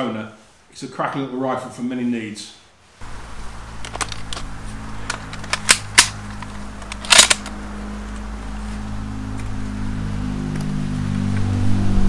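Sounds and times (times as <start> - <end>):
rifle bolt clicking: 5.1 - 7.6.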